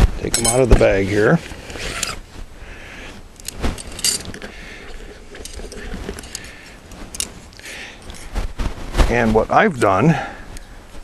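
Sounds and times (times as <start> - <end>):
metal tubes clinking together: 0.3 - 0.8, 3.4 - 7.4
fabric bag rustling: 0.5 - 9.2.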